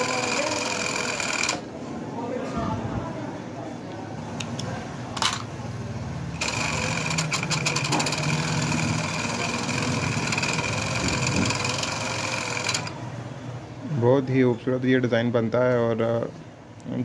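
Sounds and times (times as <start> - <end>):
sewing machine stitching: 0.0 - 1.6, 6.3 - 13.0.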